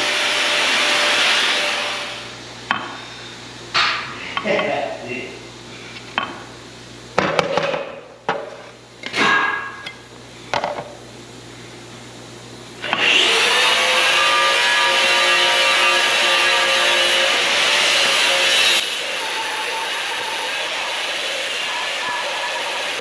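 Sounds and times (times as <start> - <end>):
power tool whining: 0.0 - 2.4, 12.8 - 23.0.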